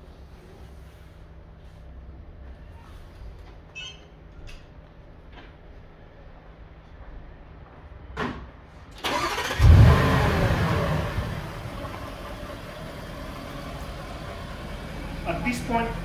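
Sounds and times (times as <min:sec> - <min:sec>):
car engine revving then idling: 0:09.1 - 0:16.0.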